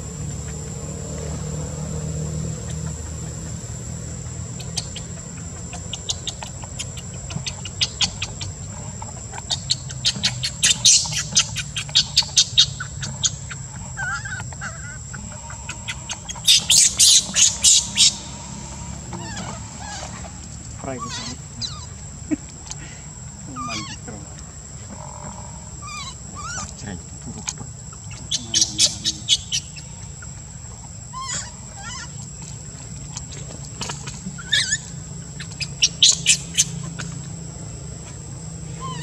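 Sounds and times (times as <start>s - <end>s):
rapid high-pitched chirps: 9.4s - 15.0s, 15.6s - 18.6s, 28.0s - 29.9s.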